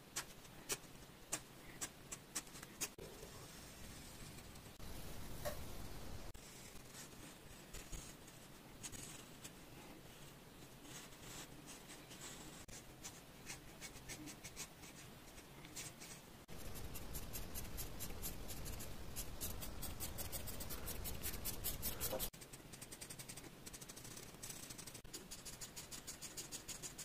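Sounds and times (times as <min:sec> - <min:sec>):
pencil scratching on paper: 0:10.9 - 0:27.0.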